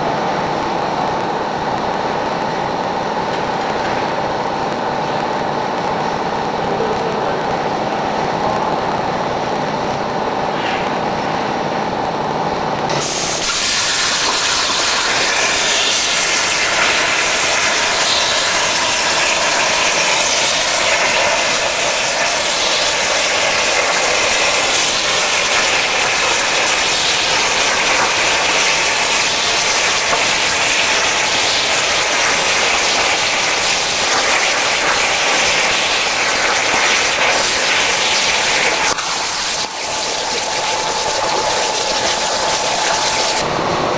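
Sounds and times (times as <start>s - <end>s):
cutting torch hissing: 12.9s - 43.5s.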